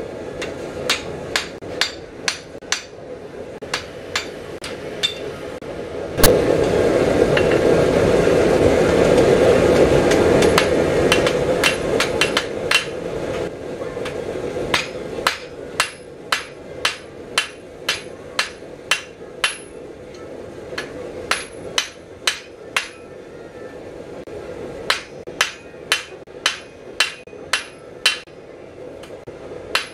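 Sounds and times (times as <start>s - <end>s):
loud steady noise: 0.0s - 29.9s
hammer striking steel on anvil: 0.4s - 3.0s, 3.6s - 5.4s, 10.1s - 13.0s, 14.0s - 23.1s, 24.8s - 28.3s.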